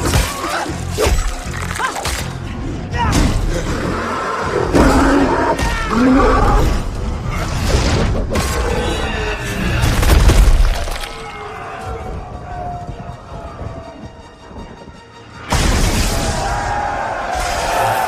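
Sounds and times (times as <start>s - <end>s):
film music: 0.0s - 18.0s.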